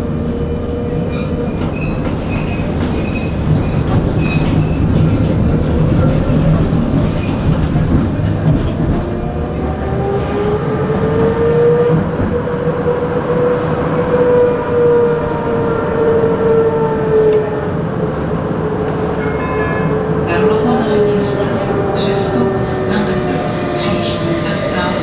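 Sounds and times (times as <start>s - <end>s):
tram motor whine: 0.0s - 25.0s
tram rumbling on rails: 0.0s - 25.0s.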